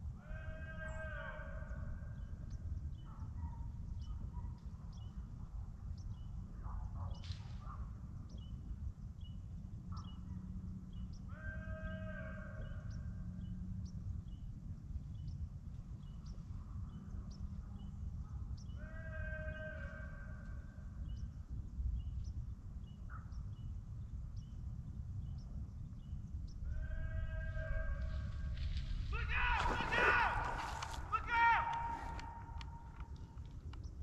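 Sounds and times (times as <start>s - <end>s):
steady low rumble: 12.4s - 18.7s, 20.3s - 34.0s.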